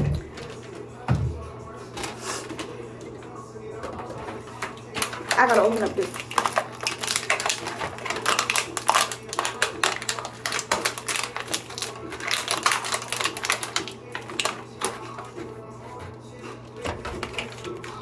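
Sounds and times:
plastic packaging tearing: 0:04.6 - 0:15.5, 0:16.7 - 0:18.0.

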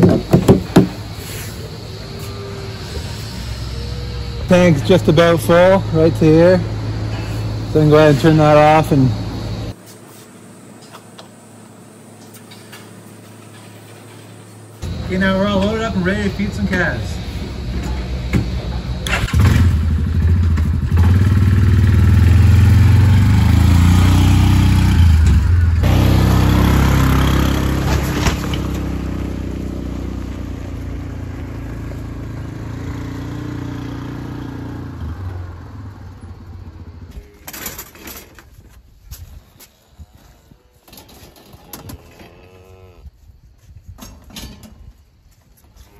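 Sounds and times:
atv engine running: 0:00.9 - 0:09.8, 0:14.8 - 0:37.4.

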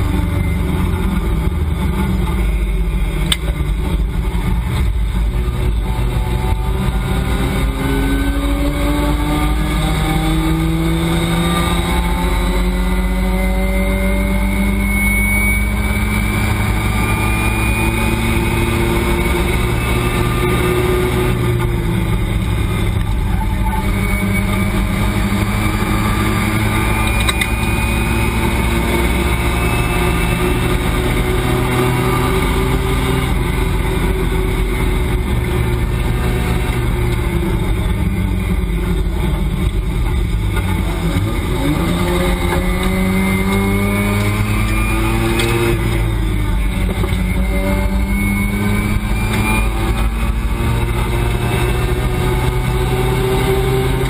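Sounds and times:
race car engine accelerating: 0:00.0 - 0:54.0.

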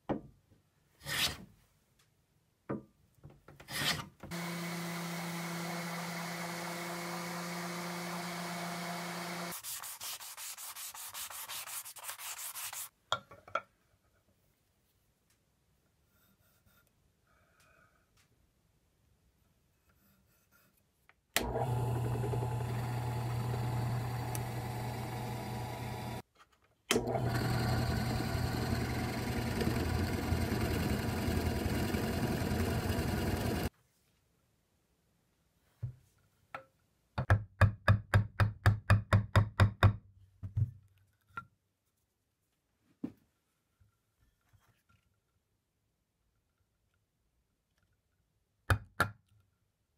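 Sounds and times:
drill press motor hum: 0:04.3 - 0:09.5, 0:21.4 - 0:26.2, 0:26.9 - 0:33.7
drill bit boring into wood: 0:04.3 - 0:09.6, 0:21.4 - 0:26.2, 0:26.9 - 0:33.7.

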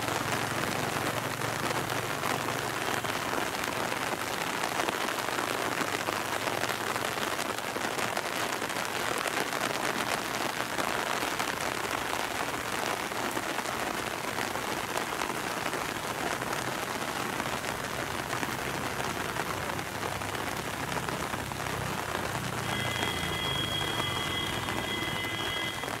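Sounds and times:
steady rain falling: 0:00.0 - 0:26.0
steady high tones: 0:22.6 - 0:26.0.

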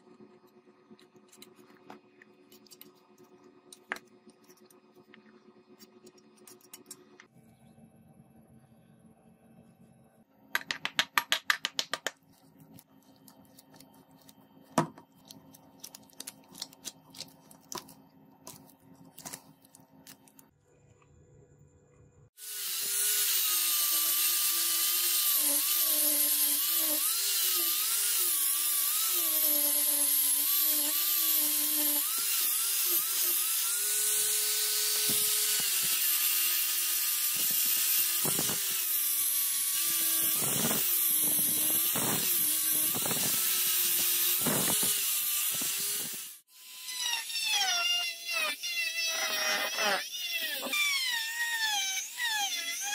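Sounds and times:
sanding disc grinding wood: 0:22.4 - 0:46.4.

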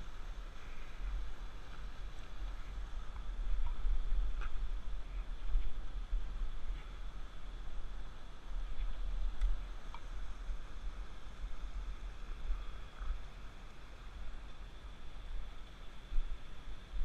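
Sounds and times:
faint steady hiss: 0:00.0 - 0:17.0
wind rumble on microphone: 0:00.0 - 0:17.0
light ticks: 0:08.8 - 0:10.2.

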